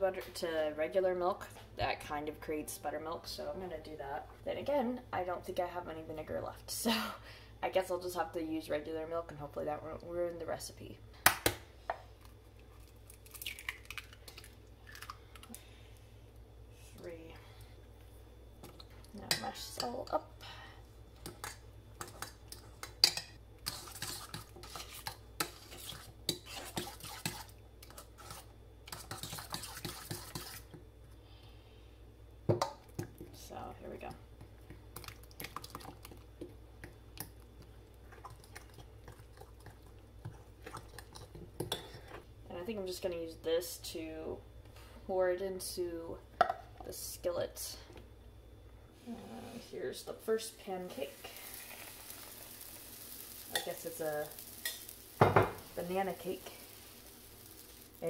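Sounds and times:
utensil scraping glass bowl: 23.7 - 27.5.

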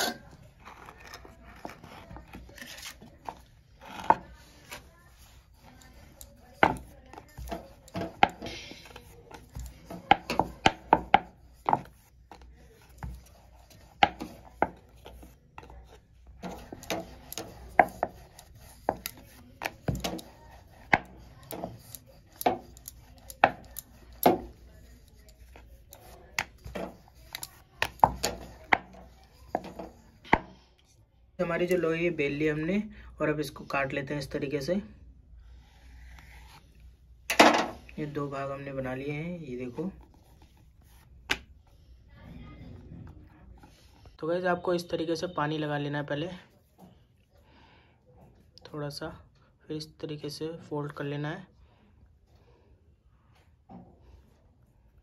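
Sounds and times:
soft rubbing: 0.0 - 30.4
rolling pin rolling dough on board: 1.6 - 30.5.

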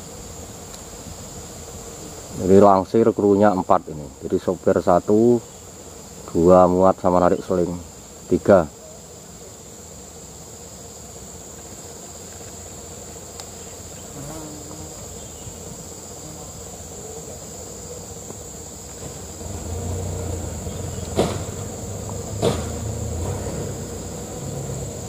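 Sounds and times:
insect chorus: 0.0 - 25.0
low engine rumble: 19.0 - 25.0
sharp knock: 21.1 - 21.6, 22.4 - 23.6.

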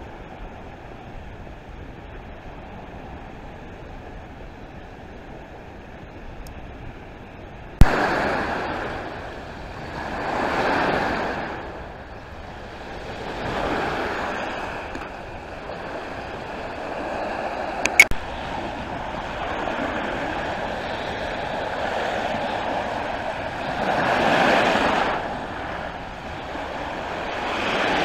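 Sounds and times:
waves washing onto shore: 0.0 - 28.0
sharp clicks: 17.8 - 18.2.

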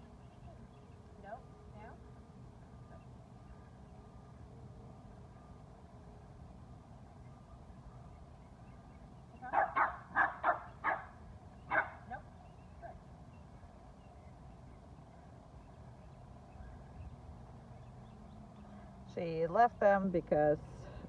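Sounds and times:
puppy yapping: 9.4 - 11.1, 11.7 - 12.3.

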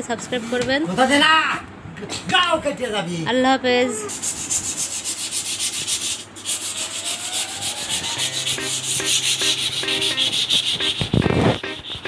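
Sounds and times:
sandpaper rubbing wood: 4.1 - 12.0.

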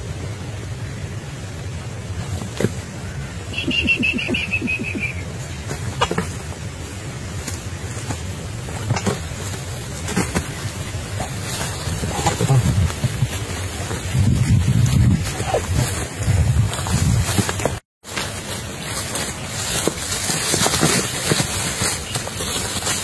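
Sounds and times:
wind buffeting microphone: 10.8 - 17.6.

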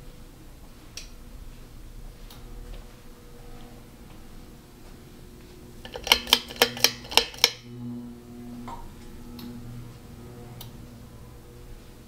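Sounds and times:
ceiling fans humming: 0.0 - 12.0
sharp ringing clicks: 5.8 - 7.7.

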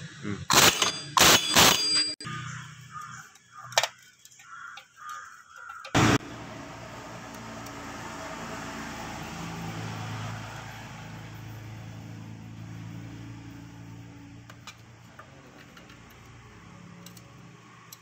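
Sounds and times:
motor vehicle engine running: 5.9 - 18.0.

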